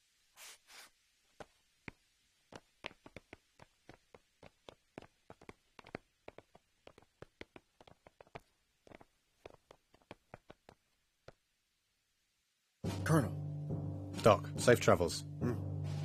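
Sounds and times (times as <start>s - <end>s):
soft rustles: 0.4s - 11.4s
footsteps on stone paving: 1.4s - 11.4s.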